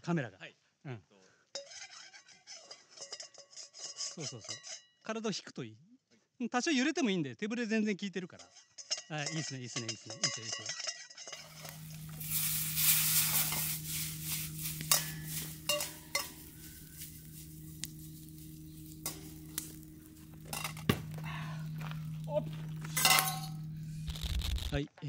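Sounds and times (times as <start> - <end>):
ladle clacking and scraping pan: 1.6 - 4.8, 8.4 - 21.2
low steady hum: 11.3 - 24.8
rice sizzling in iron pan: 11.3 - 24.8.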